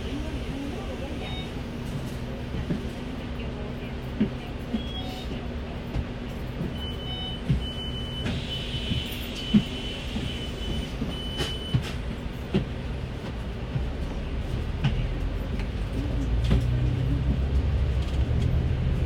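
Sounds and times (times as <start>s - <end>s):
bus engine droning: 0.0s - 19.0s.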